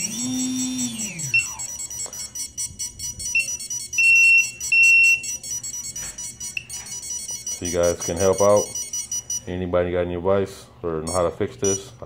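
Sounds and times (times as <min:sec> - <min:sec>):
repeating electronic motor tones: 0:00.0 - 0:09.4.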